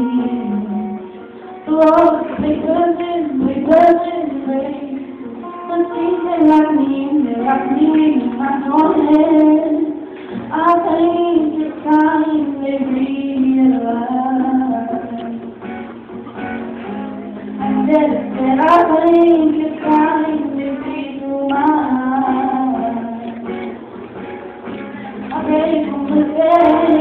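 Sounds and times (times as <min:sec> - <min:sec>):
girl singing slow song: 0:00.0 - 0:15.5, 0:17.3 - 0:23.6, 0:25.1 - 0:27.0.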